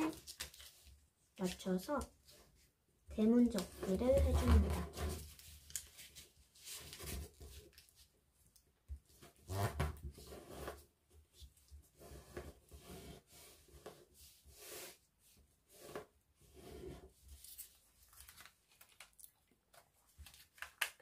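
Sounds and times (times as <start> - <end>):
paper rustling as it is folded: 0.0 - 9.4, 17.1 - 21.0.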